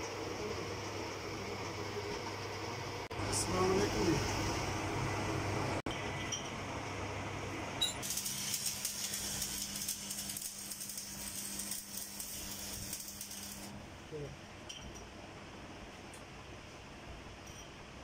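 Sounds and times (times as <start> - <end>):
welding arc crackling hiss: 8.0 - 13.8.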